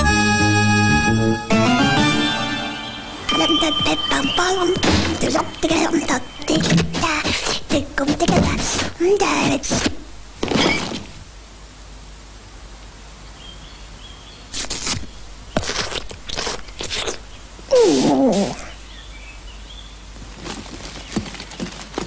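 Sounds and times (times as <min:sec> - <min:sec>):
cartoon crunching bites: 0:14.6 - 0:17.2.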